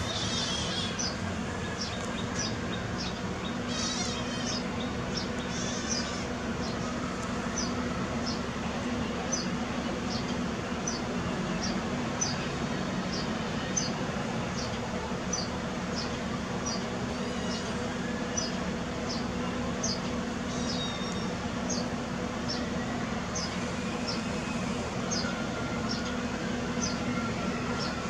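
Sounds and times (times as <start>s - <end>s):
kittens mewing: 3.7s - 4.6s.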